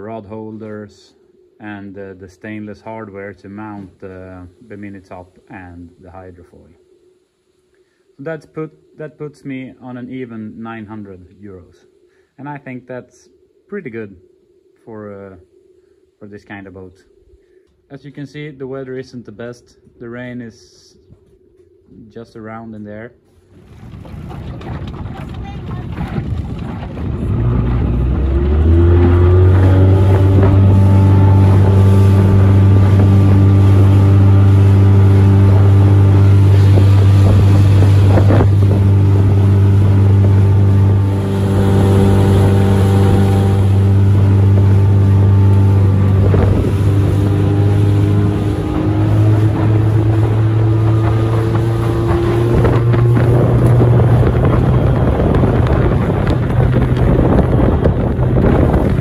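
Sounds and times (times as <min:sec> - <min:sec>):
wind buffeting microphone: 0:23.4 - 0:59.0
outboard motor running: 0:24.7 - 0:59.0.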